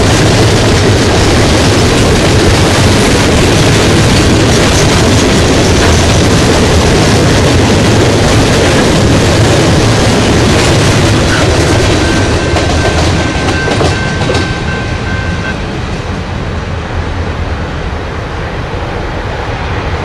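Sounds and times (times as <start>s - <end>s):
freight train wheels clattering: 0.0s - 16.1s.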